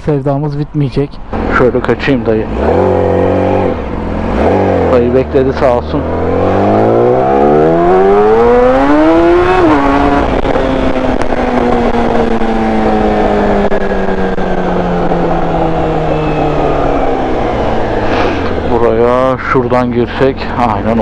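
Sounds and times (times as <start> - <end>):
motorcycle engine revving: 1.3 - 21.0.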